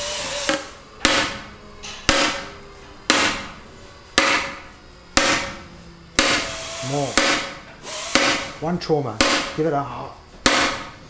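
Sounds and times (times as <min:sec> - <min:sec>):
hammer striking carbon bike frame: 0:00.5 - 0:02.5, 0:03.1 - 0:03.6, 0:04.2 - 0:05.6, 0:06.2 - 0:06.5, 0:07.2 - 0:08.5, 0:09.2 - 0:09.6, 0:10.4 - 0:11.0.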